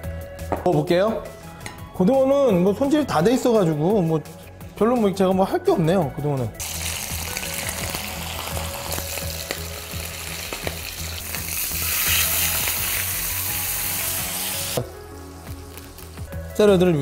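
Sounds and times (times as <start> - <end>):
fish sizzling in pan: 6.6 - 16.3.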